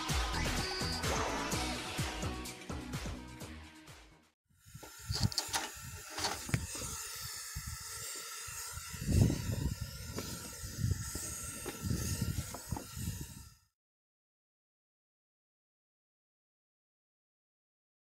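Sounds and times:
fire blower hissing: 0:04.6 - 0:13.4.

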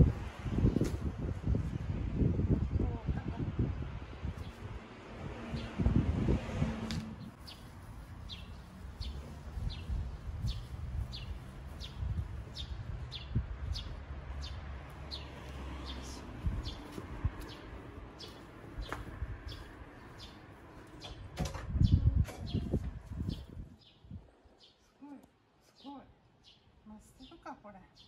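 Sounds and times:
wind rumble on microphone: 0:00.0 - 0:24.6.

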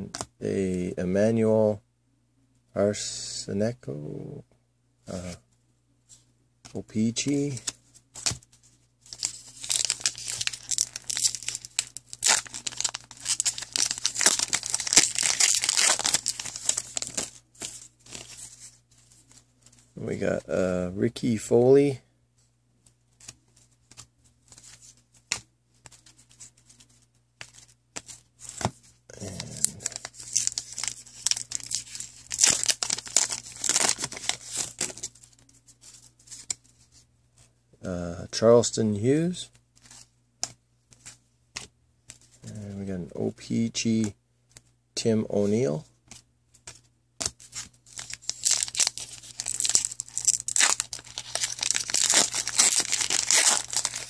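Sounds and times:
foil card pack crinkling: 0:09.1 - 0:18.6, 0:29.2 - 0:35.3, 0:47.3 - 0:54.0.

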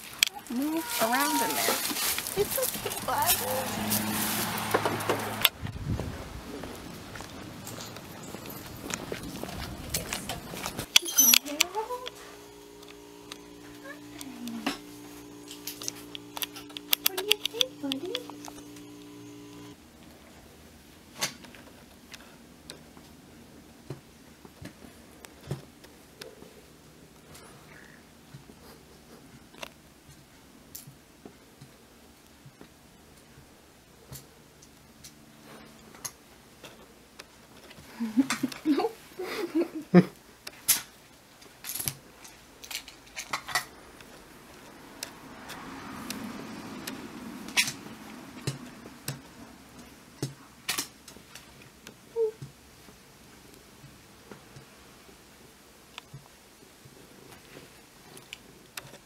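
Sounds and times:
low steady hum: 0:05.6 - 0:21.1.

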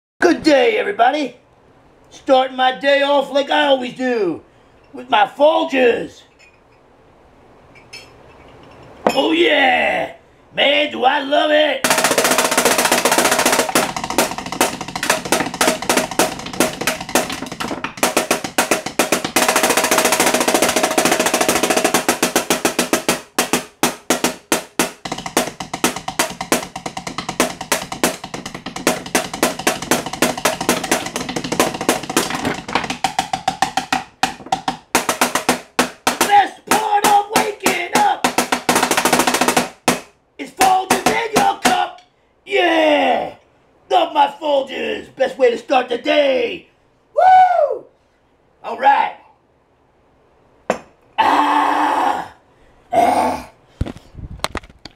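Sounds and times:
fast drumming with drumsticks: 0:11.8 - 0:42.0.

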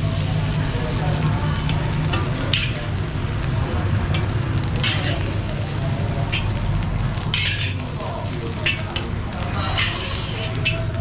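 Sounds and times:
rice sizzling in a wok: 0:00.0 - 0:11.0
metal spatula scraping wok: 0:01.6 - 0:03.4, 0:04.1 - 0:11.0.

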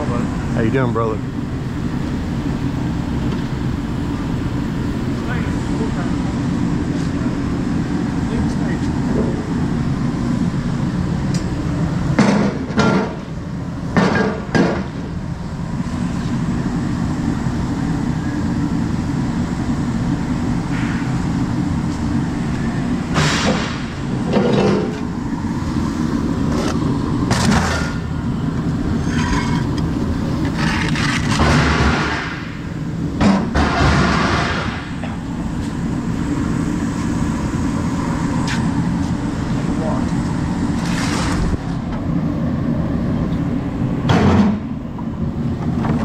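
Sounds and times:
low machinery rumble: 0:00.0 - 0:46.0
scrap metal clanking: 0:29.0 - 0:29.8.

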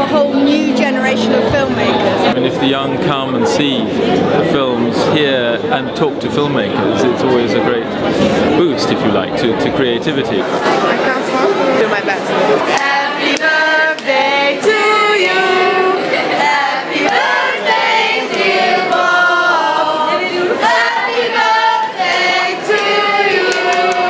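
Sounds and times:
group singing unaccompanied: 0:00.0 - 0:04.7, 0:11.8 - 0:24.0.

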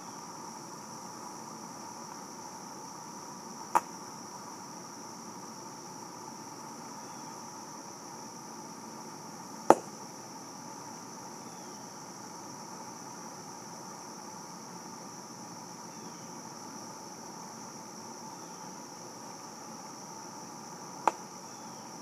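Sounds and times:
insect chorus: 0:00.0 - 0:22.0
sharp pop: 0:09.7 - 0:09.9.

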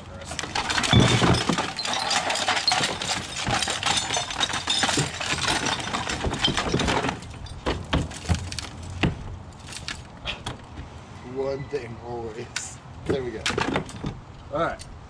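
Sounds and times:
trash clattering and rattling: 0:00.0 - 0:11.0, 0:13.0 - 0:14.3.

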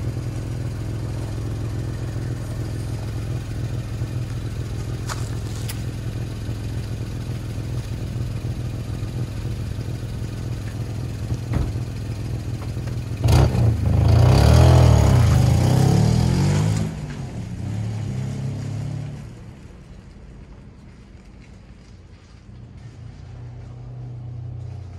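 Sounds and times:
car engine idling and revving: 0:00.0 - 0:24.9.

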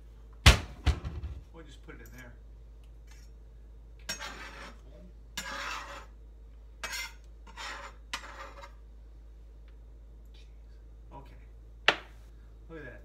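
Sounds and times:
knife scraping on cutting board: 0:04.1 - 0:04.8, 0:05.4 - 0:06.2, 0:06.8 - 0:08.8.

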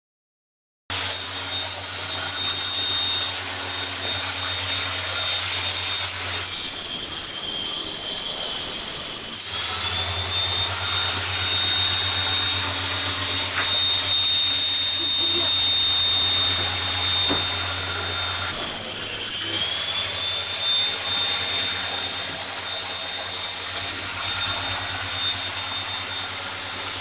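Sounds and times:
panel saw whining: 0:00.9 - 0:27.0.

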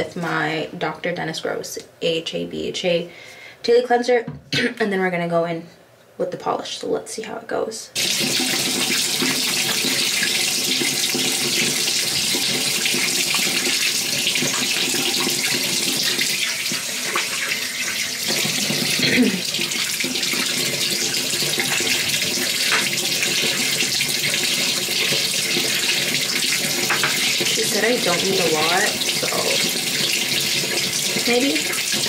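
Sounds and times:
tap water running into sink: 0:08.0 - 0:32.0.

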